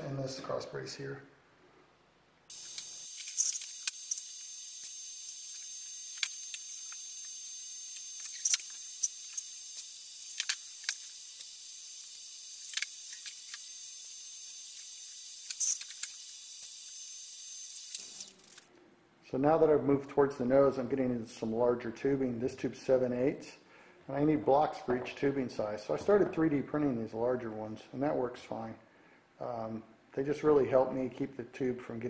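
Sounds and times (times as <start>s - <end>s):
welding arc hissing and crackling: 2.5s - 18.7s.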